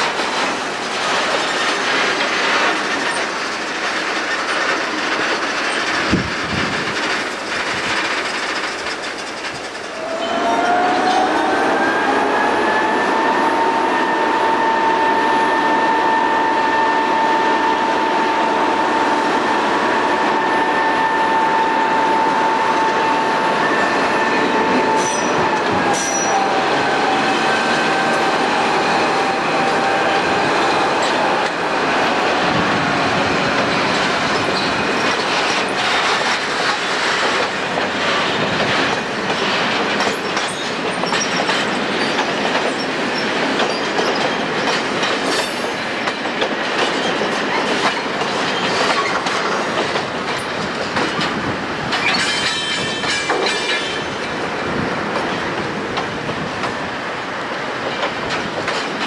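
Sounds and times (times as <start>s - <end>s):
locomotive high whine: 9.8s - 37.2s
wagon wheels clanking over rail joints: 33.6s - 54.1s.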